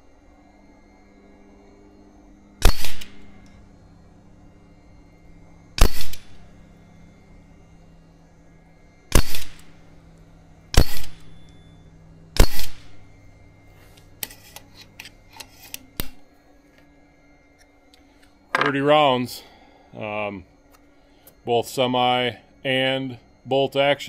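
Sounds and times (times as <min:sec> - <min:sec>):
air rifle shots: 0:02.6 - 0:03.2, 0:05.8 - 0:06.3, 0:09.1 - 0:09.6, 0:10.7 - 0:11.2, 0:12.4 - 0:12.8.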